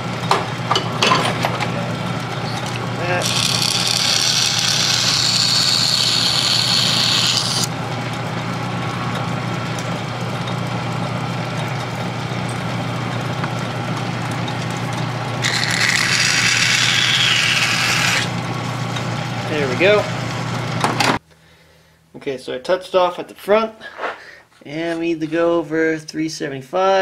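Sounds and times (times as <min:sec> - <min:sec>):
metal lathe humming: 0:01.8 - 0:20.4
deburring tool scraping metal: 0:03.0 - 0:07.7, 0:15.4 - 0:18.3.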